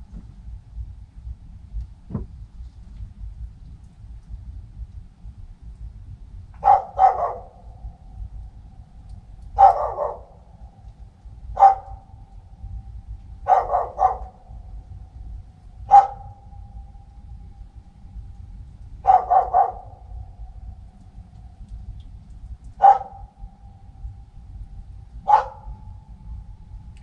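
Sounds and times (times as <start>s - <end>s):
dog barking with echo: 6.6s - 7.8s, 9.6s - 10.5s, 11.6s - 12.1s, 13.4s - 14.6s, 15.9s - 16.6s, 19.0s - 20.2s, 22.8s - 23.3s, 25.2s - 25.9s.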